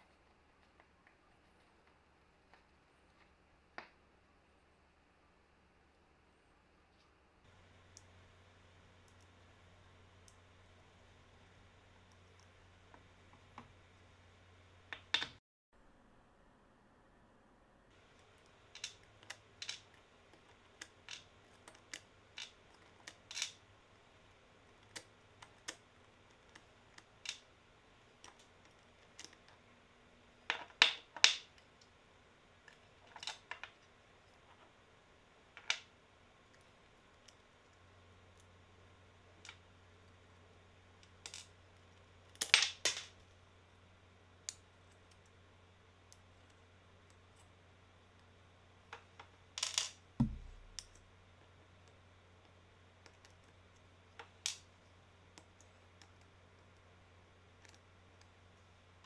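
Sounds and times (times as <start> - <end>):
metal gear parts clinking on wood: 42.3 - 43.2.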